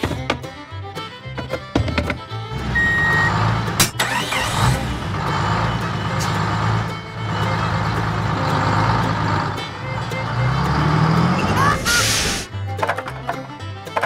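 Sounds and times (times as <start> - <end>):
tractor engine idling: 0.0 - 14.0
short beep: 2.8 - 3.4.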